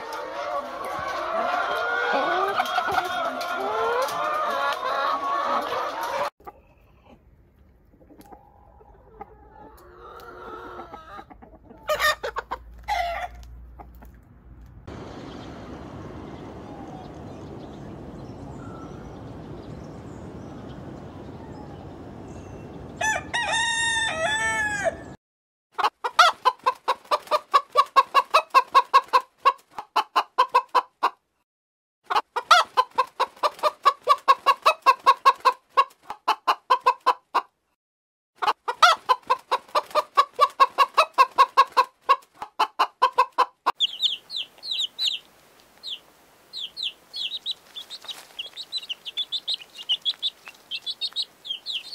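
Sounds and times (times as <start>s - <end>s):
chicks peeping: 0.0s - 7.2s, 8.0s - 14.1s, 32.1s - 37.2s, 38.4s - 51.9s
hen clucking: 0.0s - 7.3s, 7.9s - 14.2s, 25.8s - 31.2s, 32.1s - 37.5s, 38.4s - 51.9s
rooster crowing: 22.9s - 25.2s.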